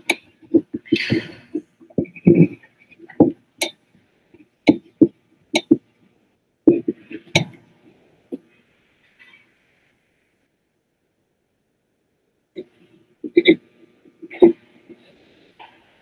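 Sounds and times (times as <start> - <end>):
sharp clicks and knocks: 4.4 - 5.9.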